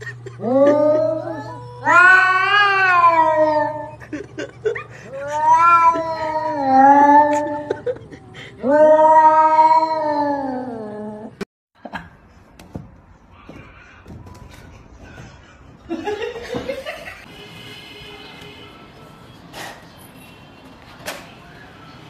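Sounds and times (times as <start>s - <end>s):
cat yowling: 0.4s - 4.0s, 5.1s - 7.7s, 8.6s - 11.3s.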